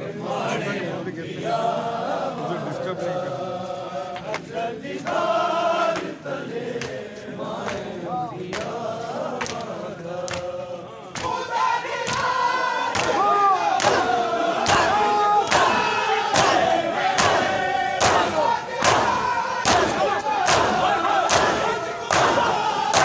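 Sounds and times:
men chanting together: 0.0s - 23.0s
hands slapping chests: 4.2s - 5.3s, 5.9s - 7.9s, 8.5s - 10.6s, 11.2s - 11.4s, 12.0s - 23.0s.

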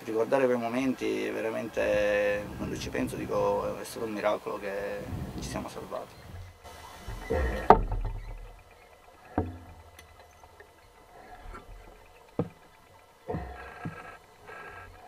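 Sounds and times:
low underwater rumble: 1.8s - 15.0s
sharp underwater knocks: 6.4s - 8.6s, 9.3s - 9.9s, 11.5s - 14.1s.

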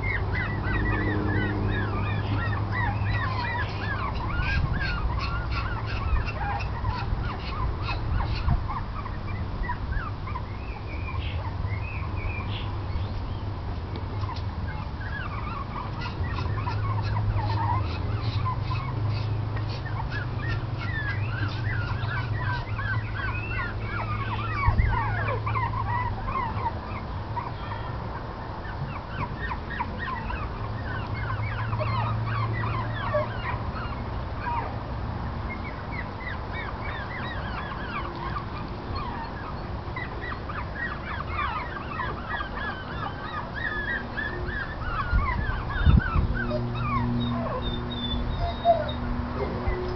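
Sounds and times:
puppies squeaking and yipping: 0.0s - 49.9s.

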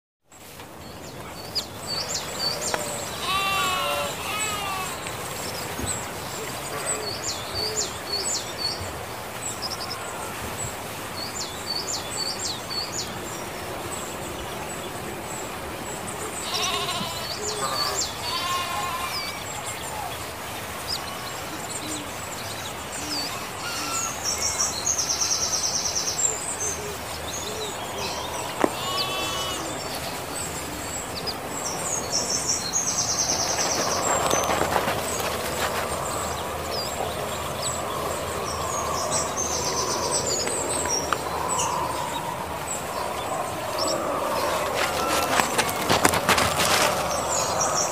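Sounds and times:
birds chirping: 0.4s - 47.9s
sheep bleating: 3.1s - 5.0s, 16.4s - 19.2s, 28.6s - 29.8s.

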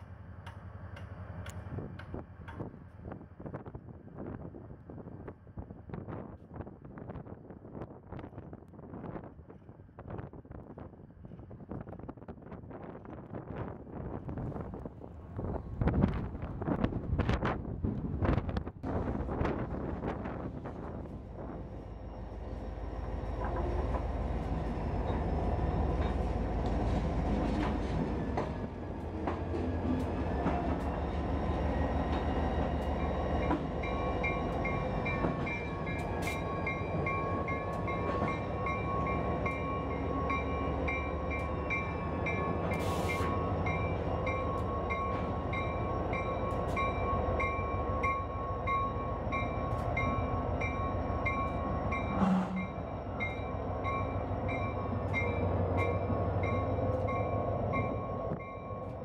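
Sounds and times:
diesel locomotive rumbling: 13.0s - 59.0s
locomotive bell ringing: 32.9s - 59.0s.

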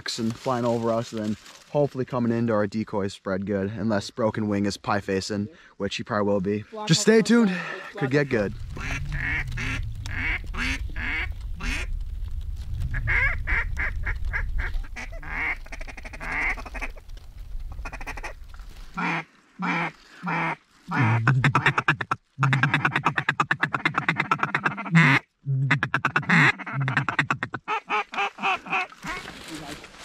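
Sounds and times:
wind rumble on microphone: 8.2s - 19.0s
duck quacking: 8.8s - 11.9s, 13.0s - 17.0s, 19.0s - 29.3s.

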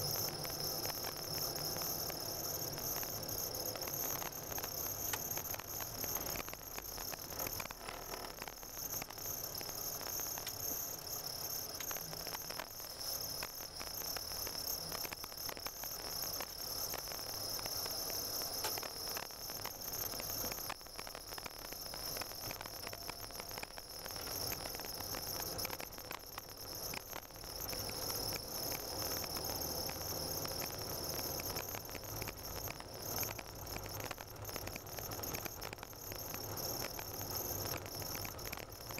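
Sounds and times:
high-pitched whine: 0.0s - 38.9s.

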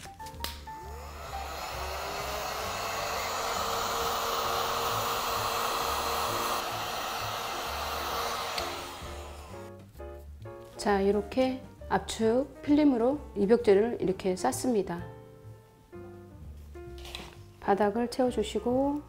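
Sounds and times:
heat gun blowing hot air: 0.7s - 9.7s.

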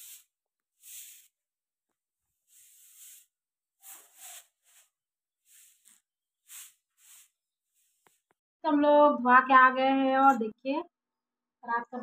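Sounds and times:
broom sweeping cement floor: 0.0s - 1.5s, 2.1s - 8.4s.

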